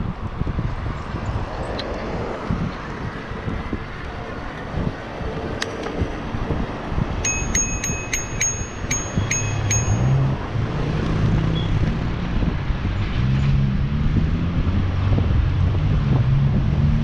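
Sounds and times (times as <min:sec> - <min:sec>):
low road rumble: 0:00.0 - 0:17.0
wind buffeting microphone: 0:00.0 - 0:17.0
high-pitched bell ringing: 0:07.2 - 0:10.4.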